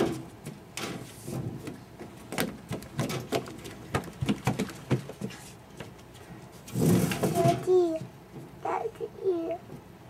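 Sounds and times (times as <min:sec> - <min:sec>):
running footsteps on wooden deck: 0:01.6 - 0:06.2.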